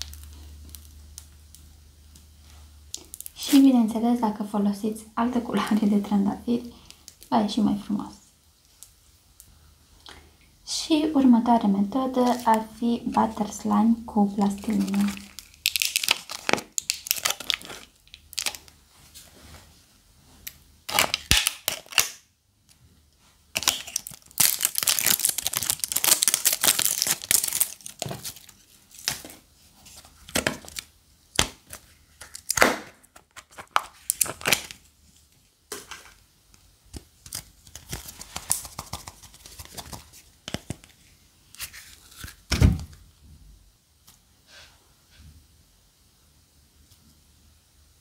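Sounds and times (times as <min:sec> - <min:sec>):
plastic wrap tearing and crinkling: 0:00.0 - 0:01.3, 0:02.9 - 0:03.6, 0:14.3 - 0:18.8, 0:20.4 - 0:22.3, 0:23.5 - 0:35.0, 0:36.9 - 0:42.5.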